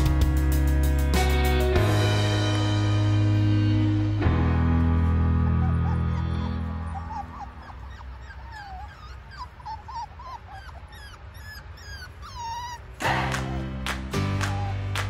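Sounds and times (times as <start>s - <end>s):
puppies whimpering: 5.1s - 13.7s, 14.4s - 15.0s.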